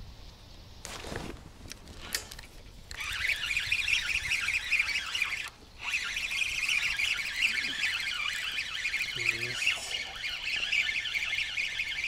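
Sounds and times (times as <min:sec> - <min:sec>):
fishing reel whirring: 0:02.9 - 0:12.0.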